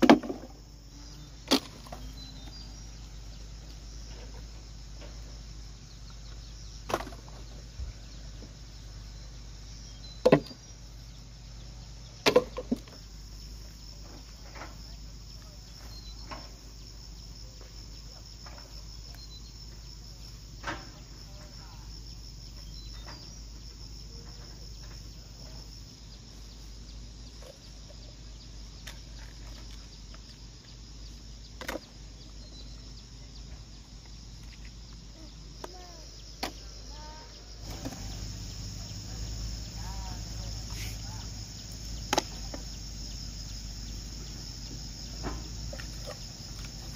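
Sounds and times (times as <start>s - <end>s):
insects chirping: 0.0s - 46.9s
sharp knocks: 10.2s - 10.6s.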